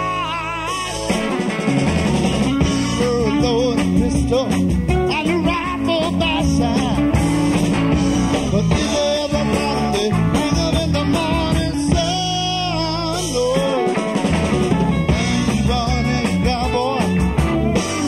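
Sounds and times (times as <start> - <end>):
electric guitar lead with bent notes: 0.0 - 18.0
rock band playing live: 0.0 - 18.0.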